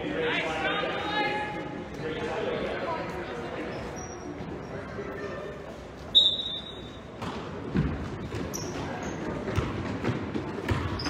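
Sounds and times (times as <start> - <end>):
basketball bouncing on gym floor: 7.1 - 11.0.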